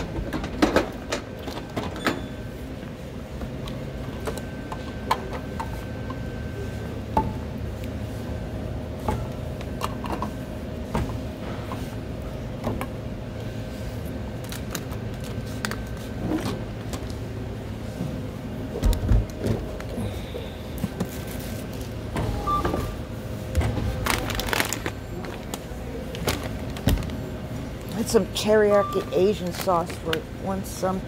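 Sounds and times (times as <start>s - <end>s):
steady store hum: 0.0s - 31.0s
groceries clinking into wire cart: 23.8s - 27.2s.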